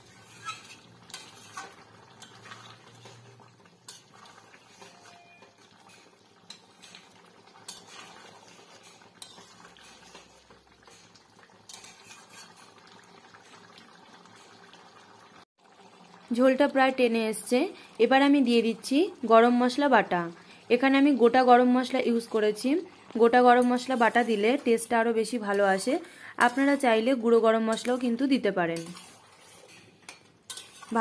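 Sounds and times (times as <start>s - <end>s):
spatula scraping a metal pan: 0.0s - 13.0s, 23.6s - 24.7s, 27.7s - 31.0s
curry bubbling in a pan: 0.0s - 31.0s.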